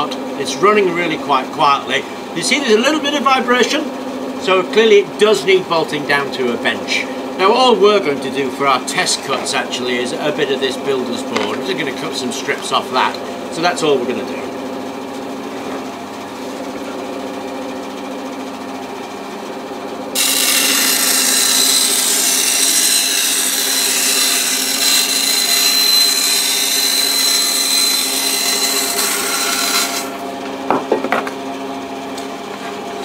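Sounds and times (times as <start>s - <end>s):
band saw motor hum: 0.0s - 33.0s
saw blade cutting board: 20.2s - 30.2s.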